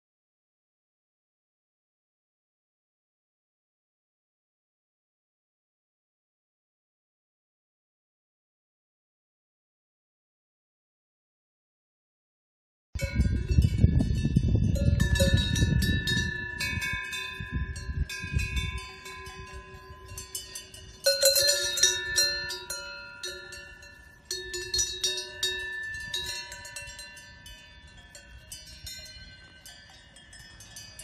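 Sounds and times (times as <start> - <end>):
cowbells clanking: 13.0 - 31.0.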